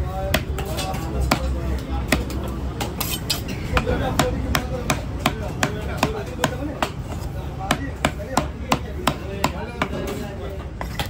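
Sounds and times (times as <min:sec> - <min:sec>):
knife chopping on wooden block: 0:03.8 - 0:10.0.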